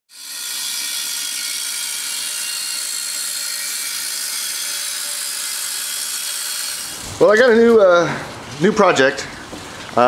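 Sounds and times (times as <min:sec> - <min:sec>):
angle grinder cutting steel: 0:00.1 - 0:07.4.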